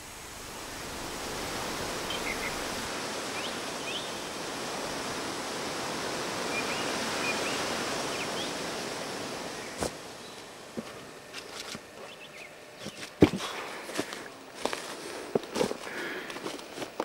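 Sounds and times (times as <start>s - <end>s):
steady rushing ambience: 0.0s - 12.8s.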